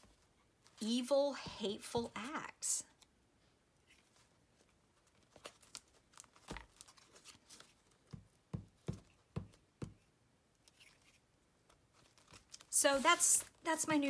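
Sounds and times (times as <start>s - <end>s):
fingers pressing paper soft thumps: 8.0s - 10.1s.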